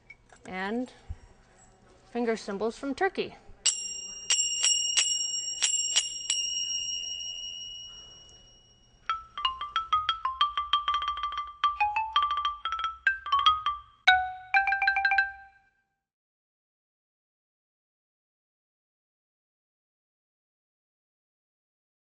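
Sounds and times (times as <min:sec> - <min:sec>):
finger cymbals ringing: 0:03.7 - 0:15.5
wooden mallet keyboard notes: 0:03.7 - 0:15.7.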